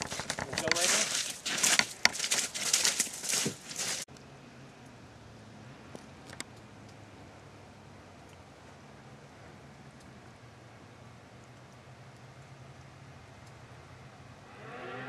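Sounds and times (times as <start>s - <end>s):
footsteps crunching on snow: 0.0s - 4.1s.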